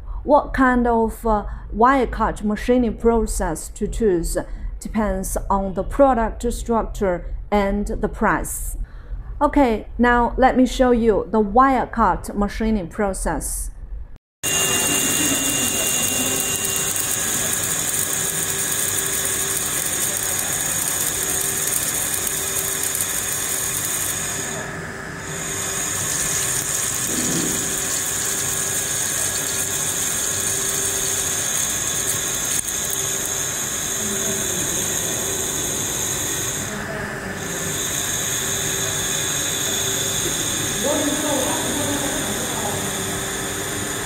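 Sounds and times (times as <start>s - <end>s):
machine low hum: 13.7s - 44.0s
coolant hissing: 14.5s - 44.0s.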